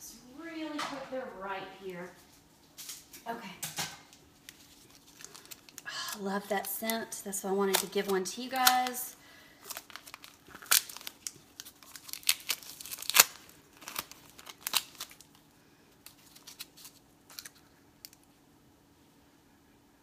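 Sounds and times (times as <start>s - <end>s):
plastic wrapping crinkling and tearing: 4.2s - 18.2s.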